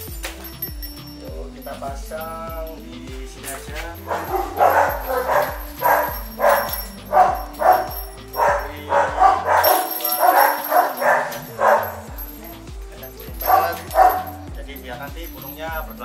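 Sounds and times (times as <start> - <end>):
background music: 0.0 - 16.0
dog barking: 4.0 - 12.5, 13.4 - 14.5.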